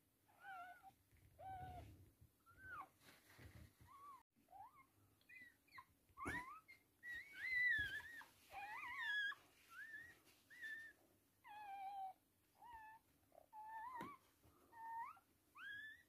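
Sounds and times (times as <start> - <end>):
puppies crying: 4.5 - 13.0.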